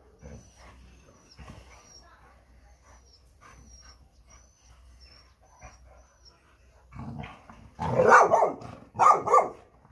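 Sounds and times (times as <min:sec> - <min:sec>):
dogs growling: 0:06.8 - 0:08.9
dogs barking: 0:07.8 - 0:09.6.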